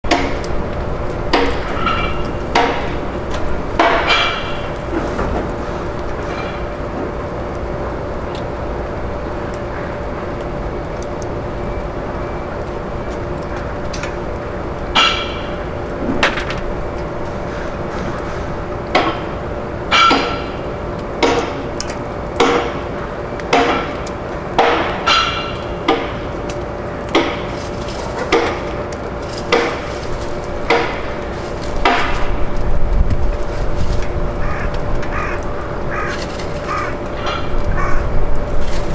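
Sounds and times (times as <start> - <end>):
sharp metallic clanks: 1.3 - 3.0, 15.0 - 15.6, 19.9 - 21.7, 24.6 - 26.3.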